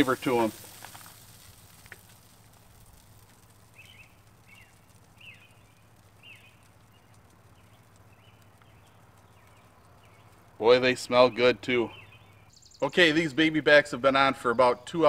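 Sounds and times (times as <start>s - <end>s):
bird chirping faintly: 3.7s - 13.4s.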